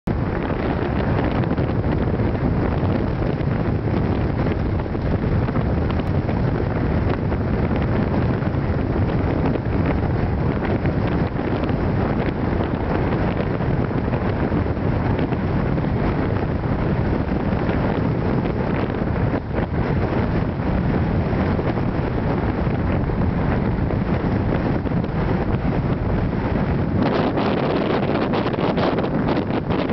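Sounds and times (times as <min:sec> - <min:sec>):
wind on microphone: 0:00.0 - 0:29.9.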